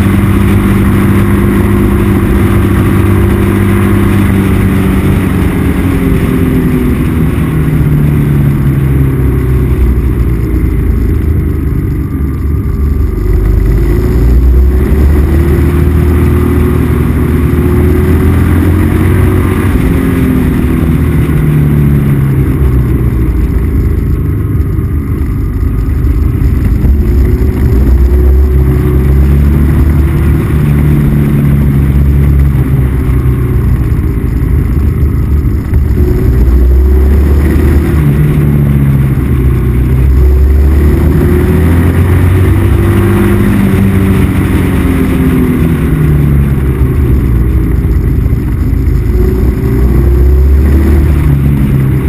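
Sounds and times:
motorcycle engine accelerating: 0.0 - 52.0
rushing wind noise: 0.0 - 52.0.

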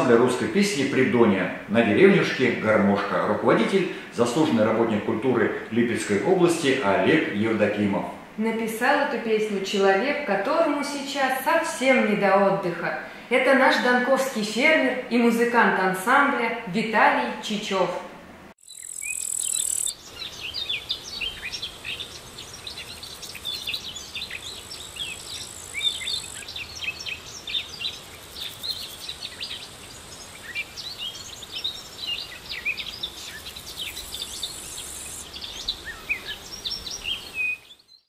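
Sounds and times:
high insect buzz: 18.6 - 37.7
small birds chirping and singing: 18.6 - 38.0.

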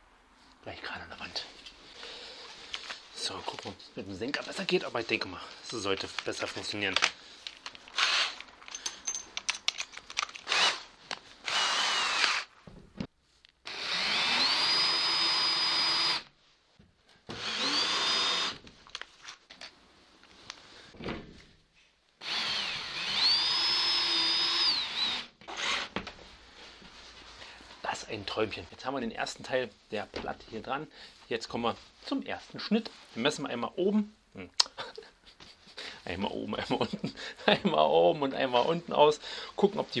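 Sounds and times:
cordless drill whine: 8.0 - 8.4, 10.4 - 10.8, 11.4 - 12.5, 13.7 - 16.3, 17.3 - 18.6, 22.2 - 25.9
handling clicks and knocks: 8.4 - 10.5.

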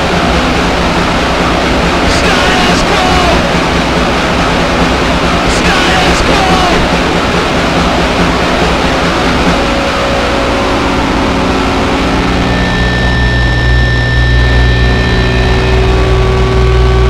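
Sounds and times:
distorted noise punk: 0.0 - 17.0
low drone: 0.0 - 17.0
high ringing tones: 9.5 - 17.0.

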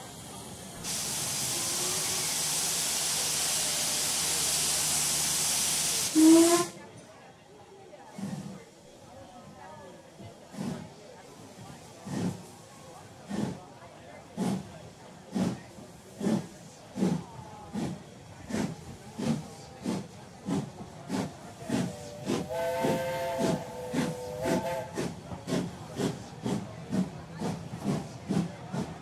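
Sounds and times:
steam locomotive exhaust chuffs: 0.1 - 6.7, 14.3 - 14.7, 15.3 - 29.0
steam whistle blowing: 6.1 - 6.8, 22.0 - 25.1.

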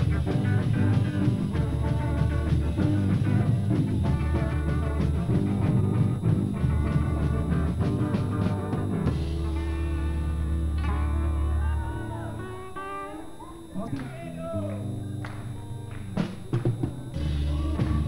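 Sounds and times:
drum kit with cymbals: 0.0 - 10.8, 16.1 - 18.0
bass guitar: 0.0 - 18.0
electric guitars: 0.0 - 18.0.

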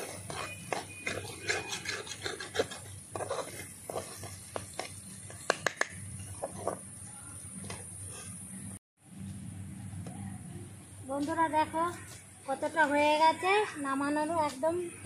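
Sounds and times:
spatula scraping fish mash: 0.0 - 4.7.

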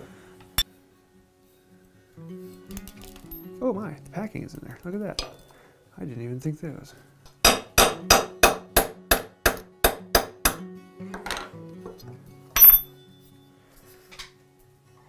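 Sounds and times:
hammer tapping metal punch: 5.2 - 5.4, 7.3 - 10.6.

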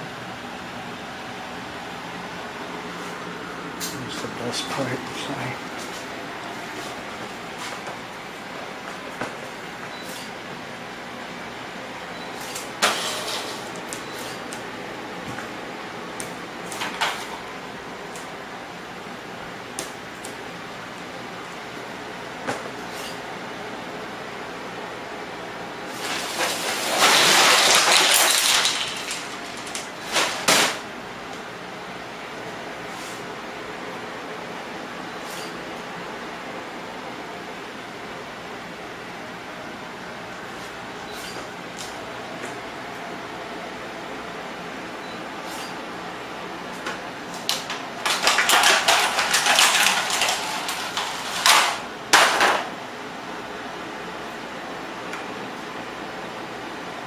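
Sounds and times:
plastic containers rustling: 25.9 - 30.8, 47.4 - 51.8
plastic packaging crinkling: 26.2 - 30.5, 48.0 - 51.5.

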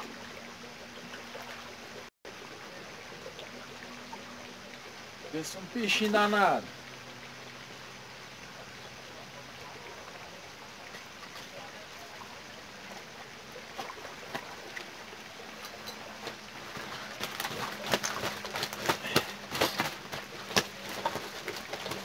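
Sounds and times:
fish splashing in water: 9.6 - 22.0.

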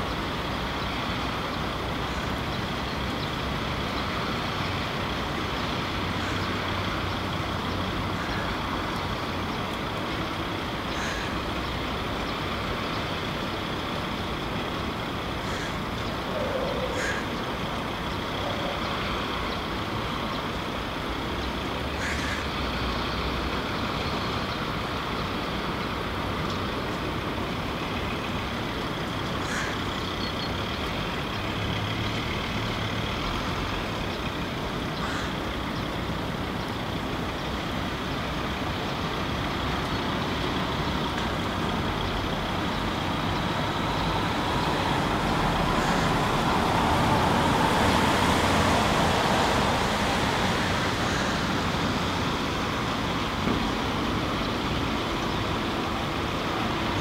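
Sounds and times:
steady rain: 17.0 - 57.0.

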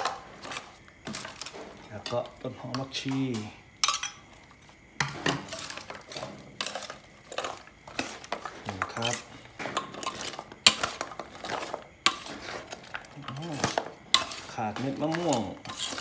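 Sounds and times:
metal tongs clinking on steel bowl: 3.8 - 4.2, 6.6 - 12.3, 13.2 - 16.0.

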